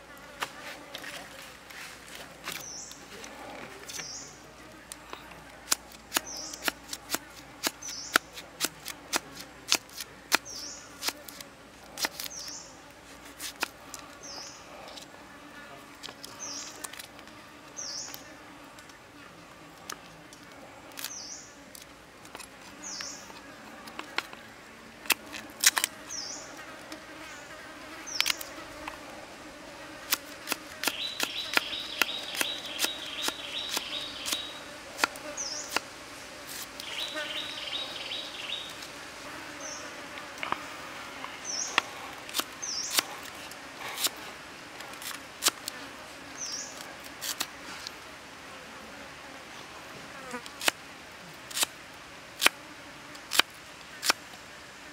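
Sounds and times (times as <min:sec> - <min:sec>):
high insect buzz: 0:05.7 - 0:19.2, 0:20.7 - 0:24.4, 0:25.0 - 0:50.8.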